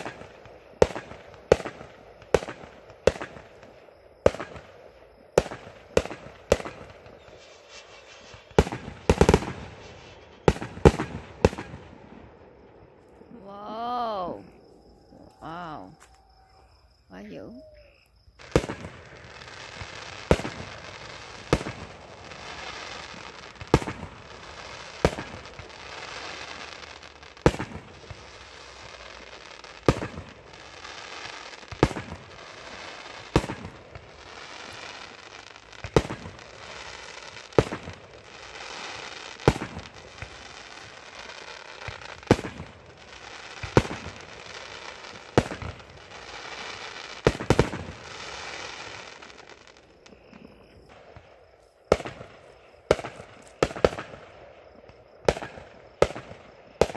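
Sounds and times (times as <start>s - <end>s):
fireworks crackling and fizzing: 0.0s - 16.3s, 17.1s - 56.9s
fireworks bangs: 0.0s - 56.9s.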